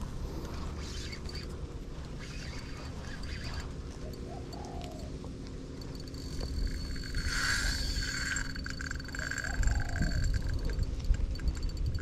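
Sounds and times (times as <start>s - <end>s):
steady low rumble: 0.0s - 12.0s
birds calling: 0.7s - 5.3s.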